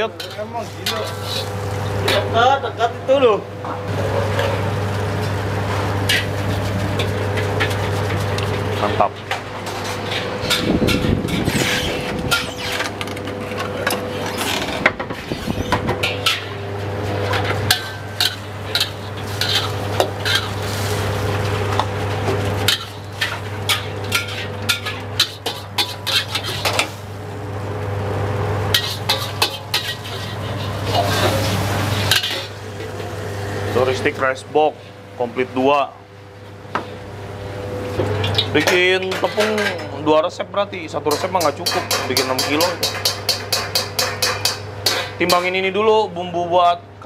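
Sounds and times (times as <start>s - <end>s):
food sizzling: 0.0s - 2.4s, 3.9s - 9.0s, 16.0s - 34.1s
ladles scraping and clanking woks: 0.0s - 2.4s, 3.9s - 14.8s, 15.4s - 27.2s, 28.6s - 33.9s, 38.0s - 40.0s, 41.0s - 45.5s.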